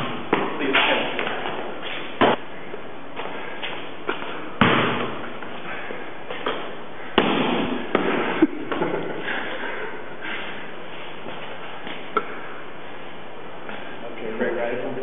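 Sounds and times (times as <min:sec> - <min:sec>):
basketball bouncing on concrete: 0:04.6 - 0:05.3.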